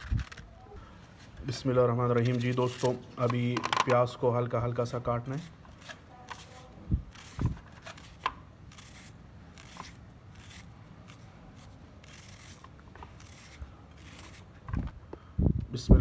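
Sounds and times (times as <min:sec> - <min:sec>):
knife slicing onion: 0:05.4 - 0:14.5.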